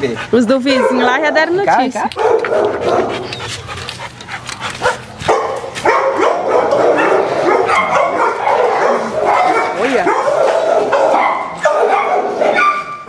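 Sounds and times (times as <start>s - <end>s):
dogs barking: 0.0s - 13.0s.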